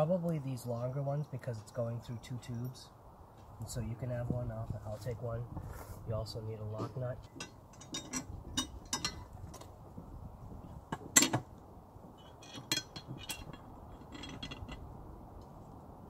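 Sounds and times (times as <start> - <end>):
metal screws and bolts clinking: 7.4 - 9.3, 12.2 - 14.9.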